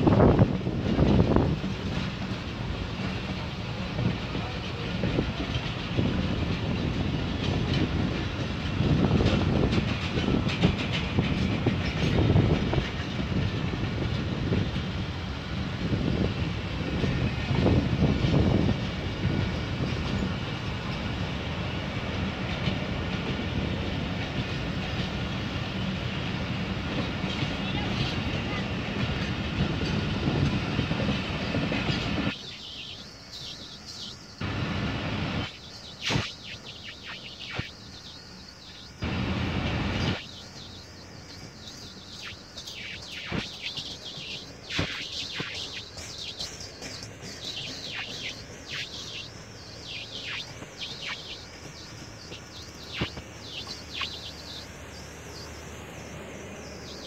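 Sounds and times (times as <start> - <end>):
diesel passenger train rumbling: 0.0 - 57.0
faint high chirping: 32.3 - 34.5, 35.4 - 39.2, 39.9 - 57.0.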